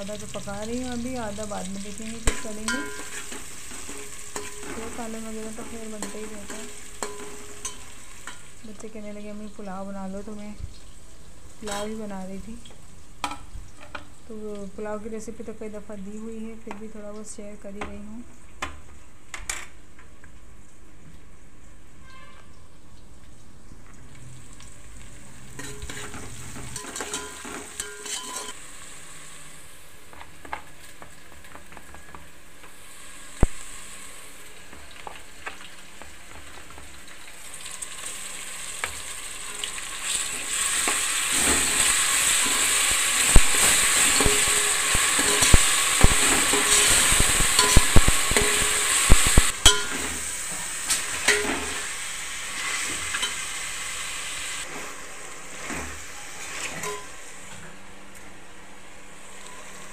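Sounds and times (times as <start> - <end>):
chicken frying in hot oil: 0.0 - 15.5, 20.2 - 57.0
metal spoon clinking against pot: 2.3 - 4.9, 6.0 - 8.5, 25.6 - 28.6, 46.5 - 48.7, 49.6 - 50.1.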